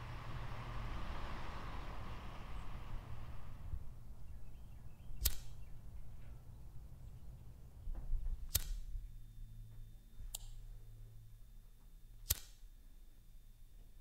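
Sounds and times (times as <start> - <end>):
lighter spark wheel clicks: 5.2 - 5.7, 8.5 - 9.0, 10.2 - 10.7, 12.2 - 12.7.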